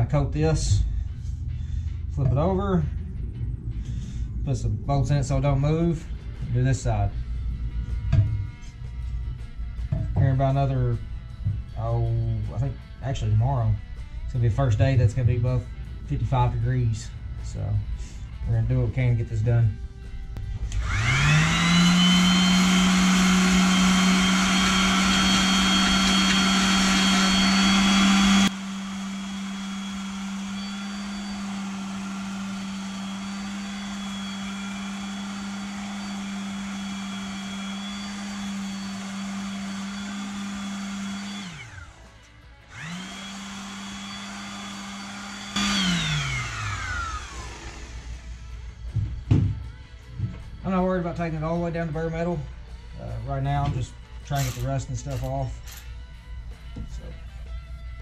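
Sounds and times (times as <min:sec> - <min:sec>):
electric orbital sander running: 0:20.6 - 0:49.1.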